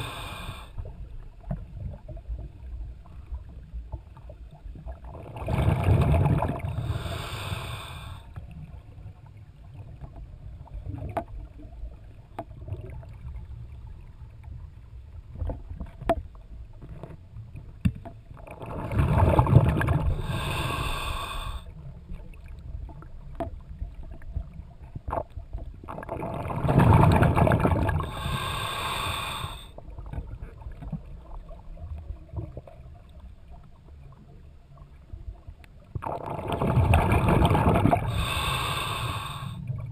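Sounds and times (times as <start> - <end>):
diver breathing through regulator: 0.0 - 0.8, 6.6 - 8.4, 20.0 - 21.8, 27.9 - 29.8, 36.8 - 39.7
low underwater rumble: 0.0 - 39.9.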